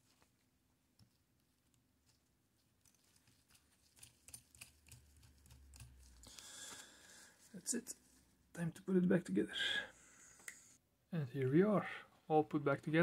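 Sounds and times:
small metal clicks: 2.8 - 6.3.

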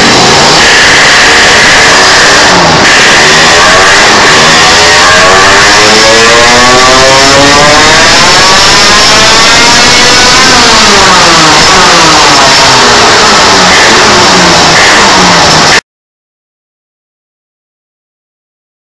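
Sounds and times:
two-stroke engine revving: 0.0 - 15.8.

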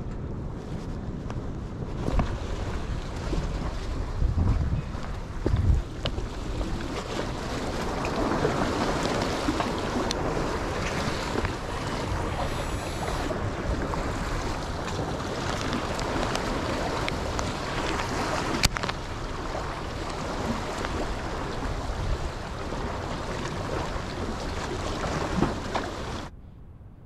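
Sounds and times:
wind on microphone: 0.0 - 27.0
small waves washing against rocks: 1.8 - 26.3.

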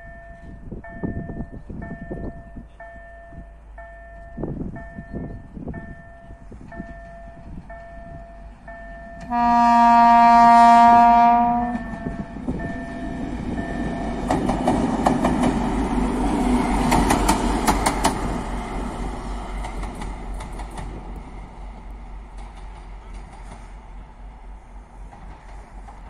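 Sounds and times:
diesel locomotive engine running: 0.3 - 26.0
locomotive horn chord: 9.2 - 12.4
wheels clicking over rail joints: 11.7 - 18.6, 19.3 - 23.8.

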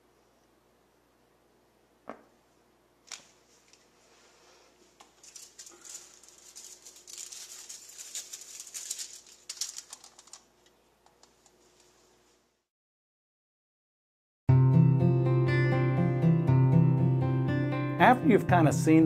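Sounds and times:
aluminium foil crinkling: 4.8 - 11.9.

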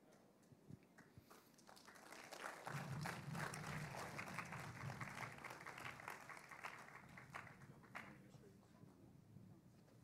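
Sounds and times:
crowd applauding: 1.6 - 8.2.

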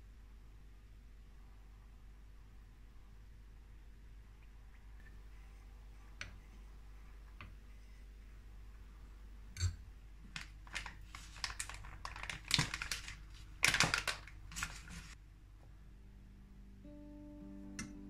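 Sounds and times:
packet crinkling and clicking: 10.3 - 15.2.

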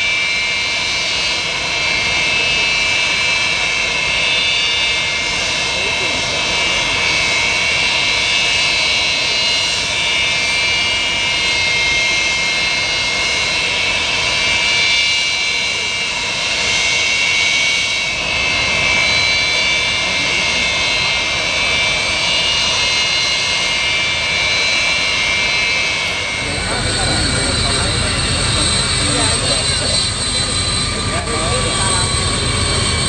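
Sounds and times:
jet engines whining: 0.0 - 33.0.

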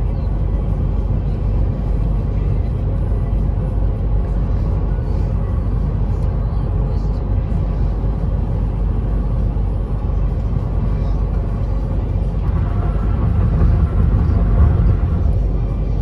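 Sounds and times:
road and engine rumble in car cabin: 0.0 - 16.0.

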